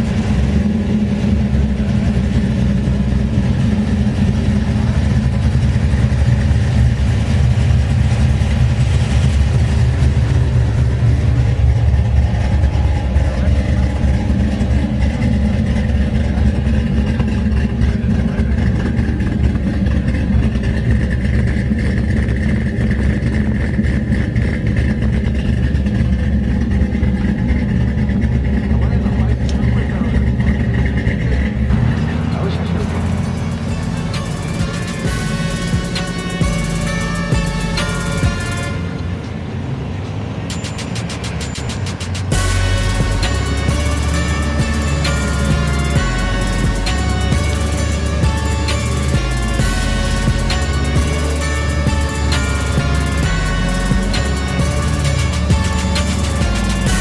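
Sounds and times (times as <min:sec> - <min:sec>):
truck engine idling: 0:00.0 - 0:57.0.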